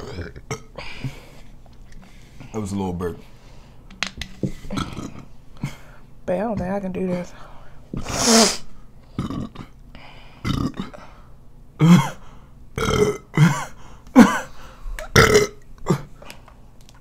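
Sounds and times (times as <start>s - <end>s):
person burping: 0.0s - 0.8s, 4.6s - 5.3s, 9.1s - 9.8s, 10.4s - 11.0s, 11.8s - 12.2s, 12.8s - 16.1s.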